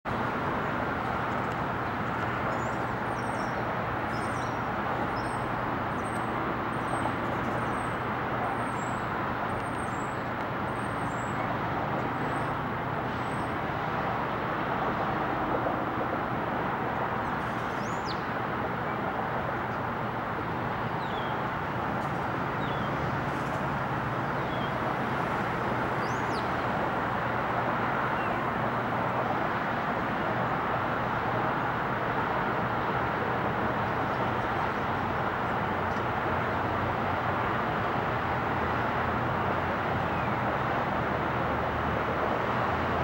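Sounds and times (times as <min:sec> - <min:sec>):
distant city traffic hum: 0:00.1 - 0:43.0.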